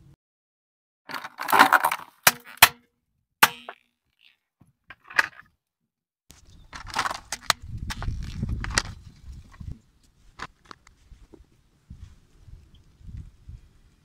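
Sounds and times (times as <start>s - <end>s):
plastic tub crunching under tyre: 1.1s - 2.6s, 6.7s - 9.0s
sharp plastic cracks: 1.1s - 2.8s, 6.7s - 9.0s.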